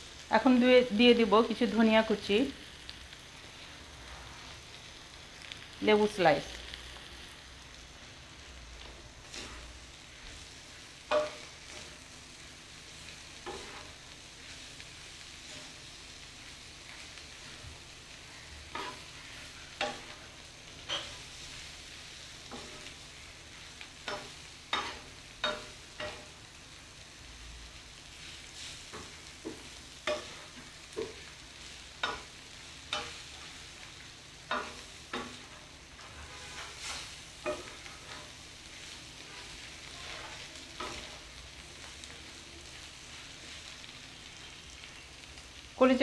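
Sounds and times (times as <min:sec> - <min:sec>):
food sizzling: 0:00.0 - 0:46.0
metal spatula scraping a griddle: 0:09.2 - 0:15.9, 0:18.7 - 0:26.4, 0:28.2 - 0:41.2.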